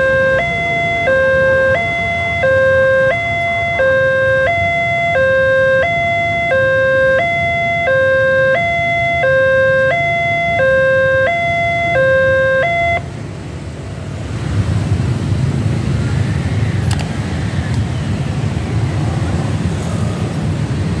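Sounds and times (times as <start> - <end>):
two-tone crossing alarm: 0.0 - 13.1
motorcycle and car engines rumbling: 0.0 - 21.0.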